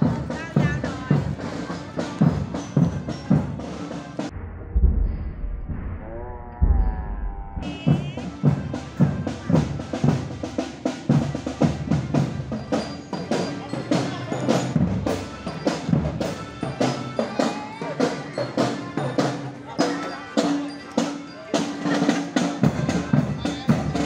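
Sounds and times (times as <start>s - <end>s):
drum and percussion music: 0.0s - 24.0s.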